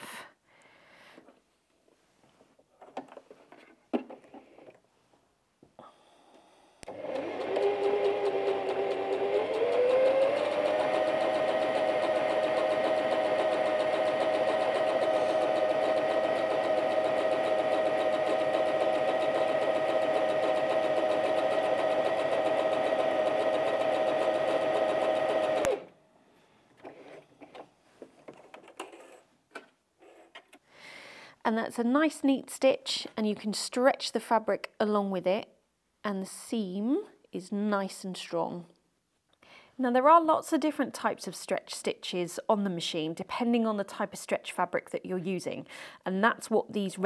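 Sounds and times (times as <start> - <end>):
sewing machine motor humming: 6.9 - 25.9.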